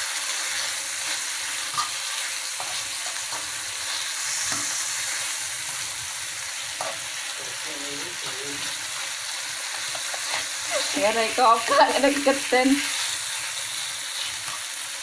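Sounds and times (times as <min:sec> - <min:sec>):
meat sizzling in a frying pan: 0:00.0 - 0:15.0
fork scraping a pan: 0:00.6 - 0:05.0, 0:06.8 - 0:07.1, 0:09.7 - 0:11.1.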